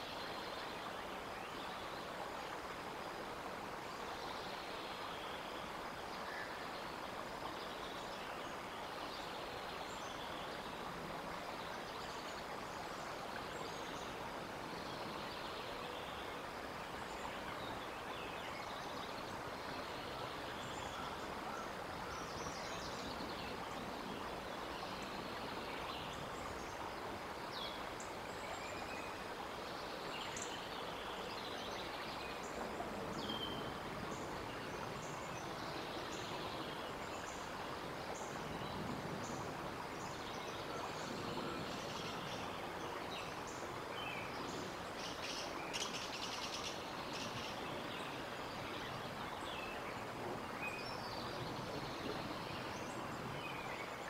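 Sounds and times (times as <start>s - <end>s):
steady background hiss: 0.0s - 54.0s
songbird chirps and calls: 11.4s - 54.0s.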